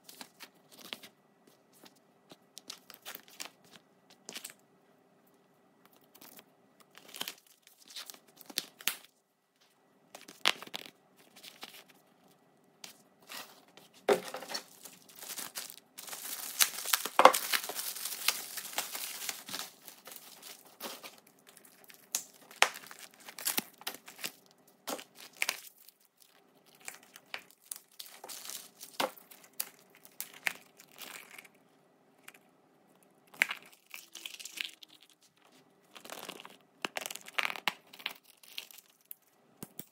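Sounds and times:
tissue paper crumpling: 14.5 - 22.0.

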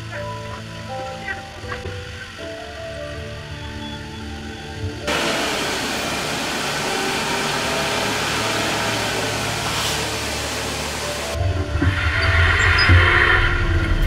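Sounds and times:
factory machinery rushing: 5.1 - 14.0.

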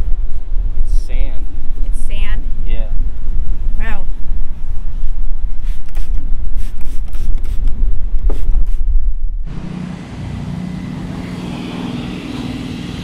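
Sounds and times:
wind buffeting microphone: 0.0 - 13.0
spray bottle squirts: 5.6 - 8.8
mechanical hum with low drone: 8.9 - 13.0.

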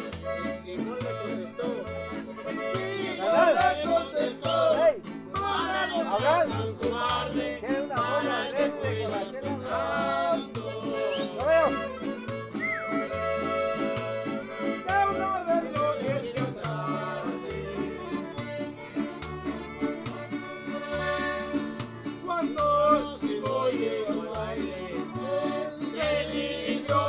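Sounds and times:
accordion: 0.0 - 27.0
acoustic guitars: 0.0 - 27.0
upright bass plucking low notes: 0.0 - 27.0
violin: 6.3 - 27.0.

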